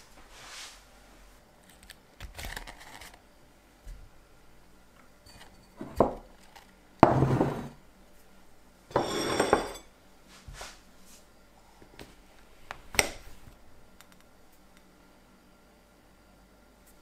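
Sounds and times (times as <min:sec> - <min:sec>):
plate knocking on wooden table: 0:07.0 - 0:07.7
plate scraping on wood: 0:07.1 - 0:07.8, 0:08.9 - 0:09.8
ringing clink of plate: 0:08.9 - 0:09.9.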